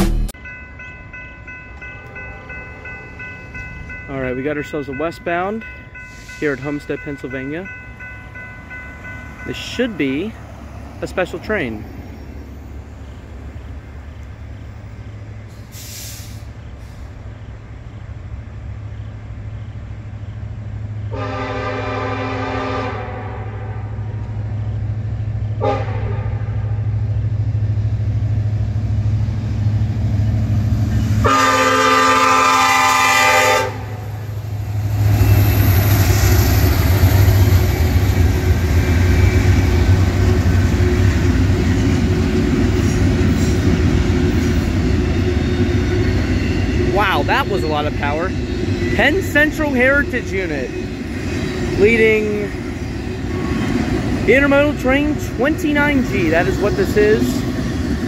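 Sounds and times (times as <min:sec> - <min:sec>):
locomotive engine rumbling: 0:00.0 - 0:58.0
locomotive horn blasts: 0:21.1 - 0:23.8, 0:25.6 - 0:26.7, 0:31.2 - 0:34.0.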